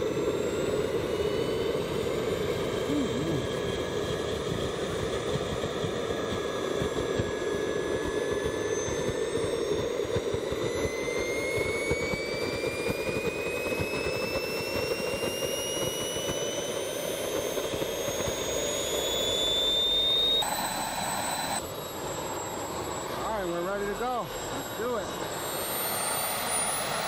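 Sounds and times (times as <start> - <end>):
turbojet engine whine: 0.0 - 27.0
jet exhaust rush: 19.2 - 27.0.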